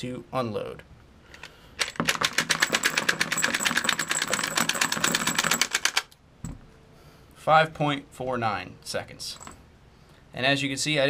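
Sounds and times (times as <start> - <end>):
fast sharp clicks of cartridges: 1.4 - 6.2.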